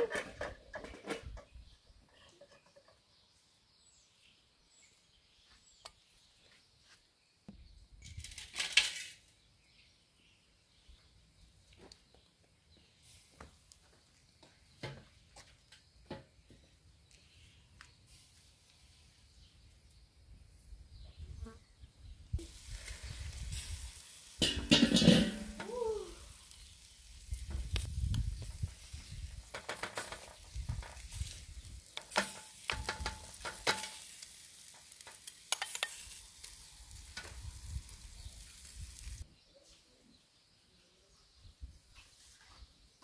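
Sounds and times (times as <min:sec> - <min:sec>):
meat sizzling on a grill: 0:22.4 - 0:39.2
spoon scraping metal grate: 0:22.6 - 0:25.6, 0:29.5 - 0:37.4.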